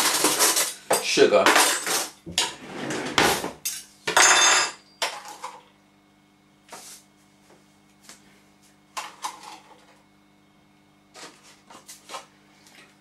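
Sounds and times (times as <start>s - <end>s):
metal utensils clattering: 0.0s - 2.6s
faint steady hum: 0.0s - 13.0s.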